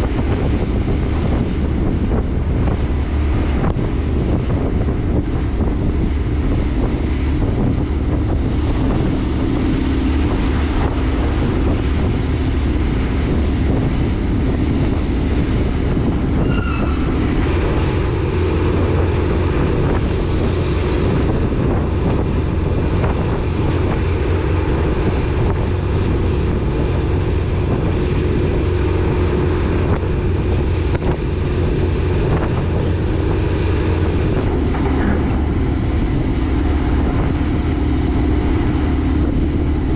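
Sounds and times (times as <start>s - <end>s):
ferry engines rumbling: 0.0s - 39.9s
wind buffeting microphone: 0.0s - 39.9s.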